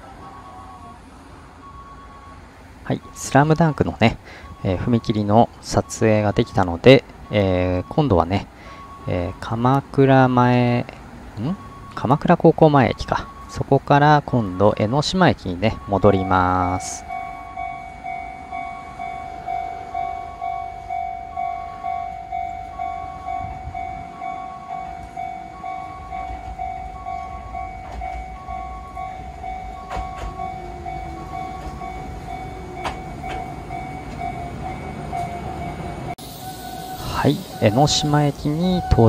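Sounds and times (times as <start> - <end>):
electric train rumble: 0.0 - 39.0
level-crossing warning bells: 0.0 - 39.0
high-pitched alarm ringing: 1.6 - 9.5, 14.4 - 39.0
wheels clicking over rail joints: 24.7 - 36.1.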